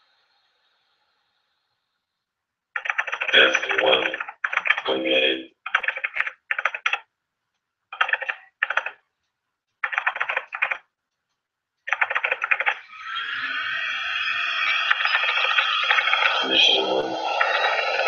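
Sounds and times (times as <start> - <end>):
keyboard typing clicks: 2.8 - 4.8, 5.7 - 12.8, 14.9 - 16.4
steady rushing drone: 13.8 - 18.0.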